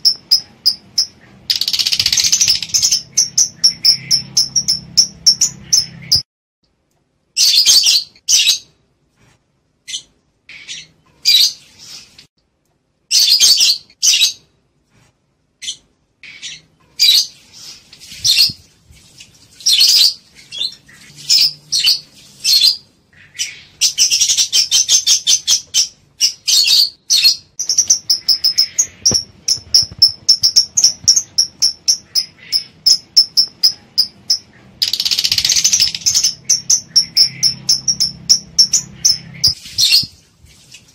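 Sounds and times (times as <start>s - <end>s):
lovebirds chirping: 0.0s - 6.3s, 9.8s - 12.3s, 15.6s - 18.7s, 19.5s - 40.2s.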